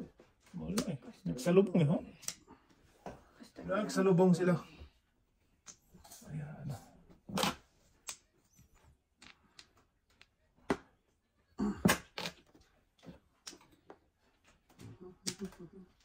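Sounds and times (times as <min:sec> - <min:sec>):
mahjong tiles clacking: 0:09.1 - 0:10.4.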